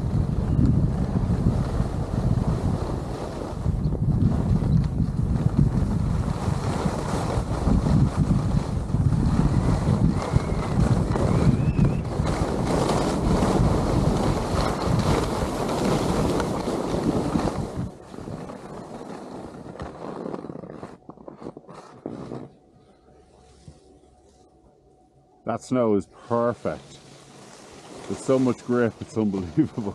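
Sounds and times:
wind buffeting microphone: 0.0s - 22.6s
skis running over snow: 0.1s - 22.6s, 26.3s - 29.9s.

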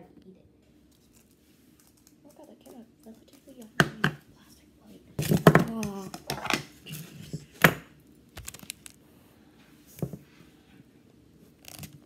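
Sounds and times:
knocking on paper bowl: 3.8s - 4.2s.

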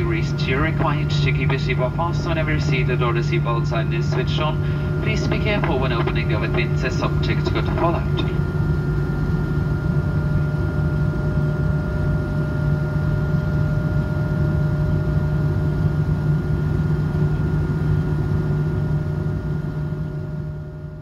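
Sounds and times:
aircraft cabin engine drone: 0.0s - 21.0s.

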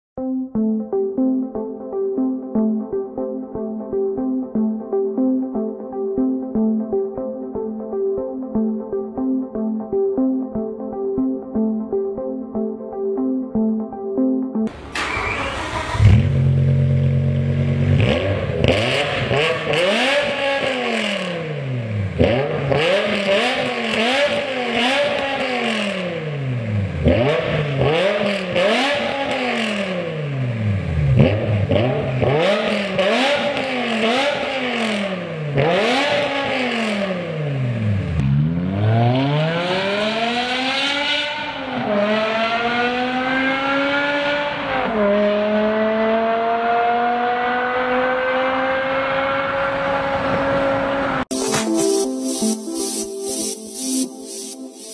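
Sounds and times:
exhaust crackles: 14.7s - 40.2s
car engine revving: 14.7s - 51.4s.

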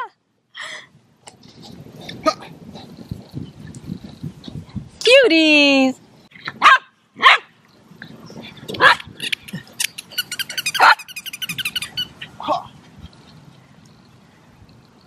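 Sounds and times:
dog barking: 6.6s - 7.5s, 8.8s - 9.0s, 10.7s - 11.2s.

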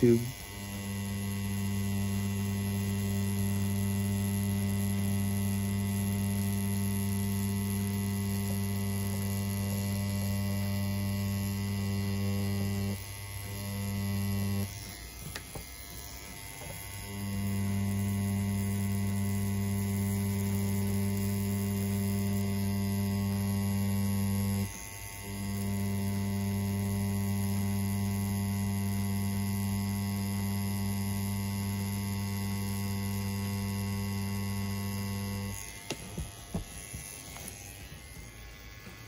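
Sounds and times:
tattoo pen buzzing: 0.0s - 39.0s.

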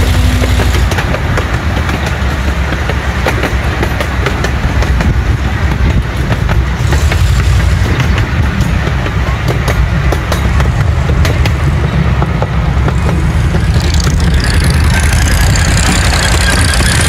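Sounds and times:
miniature train rumbling: 0.0s - 17.0s
wheels clicking on rails: 0.0s - 17.0s
high wheel squeal: 13.7s - 17.0s.

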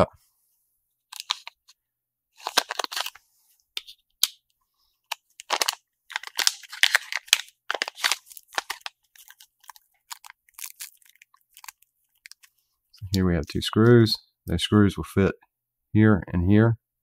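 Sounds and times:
plastic bag crinkling: 2.4s - 3.2s, 5.1s - 12.5s.

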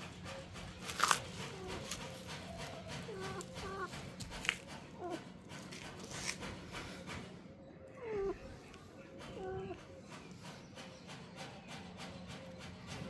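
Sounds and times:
kittens mewing: 1.5s - 5.4s, 7.9s - 9.9s.

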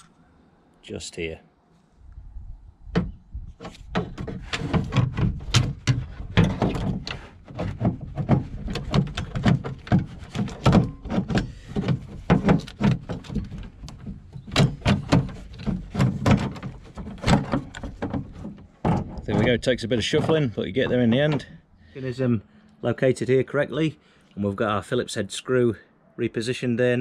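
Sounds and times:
part knocking inside metal door: 3.9s - 20.6s.

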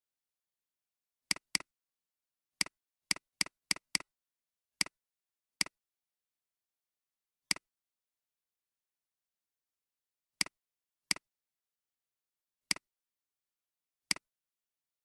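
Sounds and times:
computer mouse clicking: 1.3s - 1.7s.

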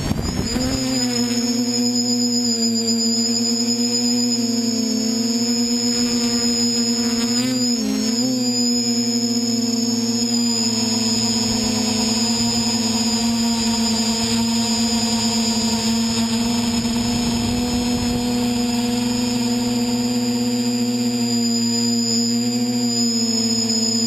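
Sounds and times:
drone motors buzzing: 0.0s - 24.0s.

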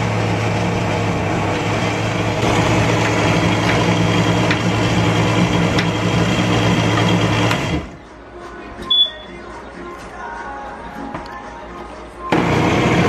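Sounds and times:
blender motor running: 0.0s - 7.9s, 12.3s - 13.0s.

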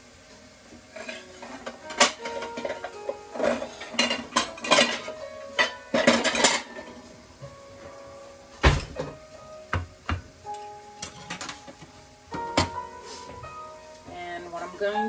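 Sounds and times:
background music: 0.9s - 15.0s
ceramic dishes clinking: 1.9s - 6.8s.

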